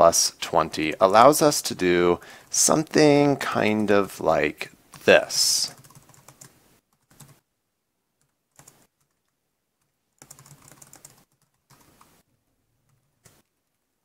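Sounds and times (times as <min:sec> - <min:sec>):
computer keyboard typing: 0:05.7 - 0:07.4, 0:08.2 - 0:12.2.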